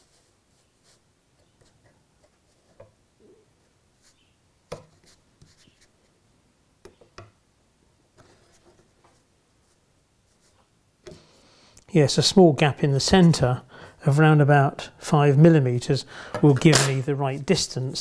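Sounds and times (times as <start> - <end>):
soft rubbing: 8.2 - 10.7.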